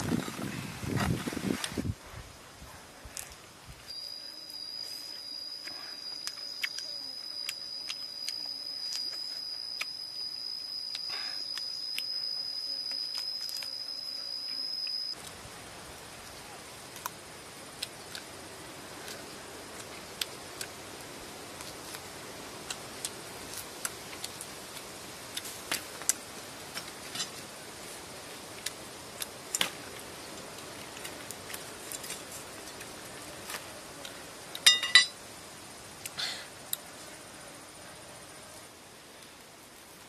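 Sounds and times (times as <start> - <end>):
steady hiss: 14.0 - 40.0.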